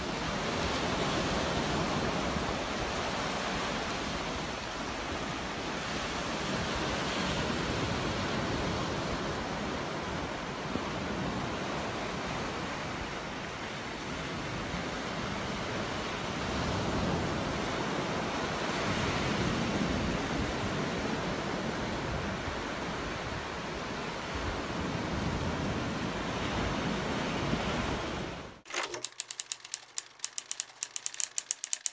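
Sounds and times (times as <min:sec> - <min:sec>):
wind on a beach: 0:00.0 - 0:28.6
sharp typing-like clicks: 0:28.7 - 0:31.9.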